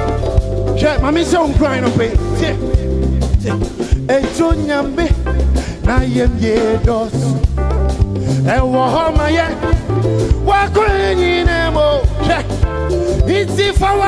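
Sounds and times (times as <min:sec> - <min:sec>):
gospel band playing: 0:00.0 - 0:14.0
person singing: 0:00.8 - 0:14.0.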